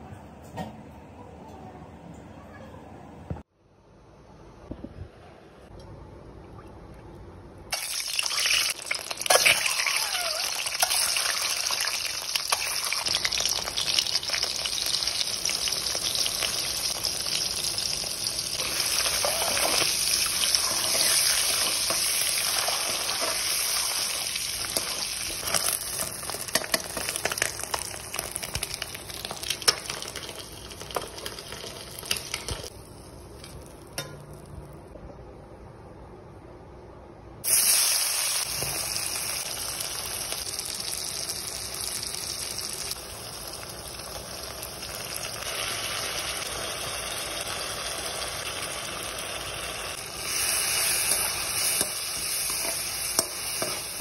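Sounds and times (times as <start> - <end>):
eggs sizzling in hot oil: 7.7 - 34.2, 37.4 - 54.0.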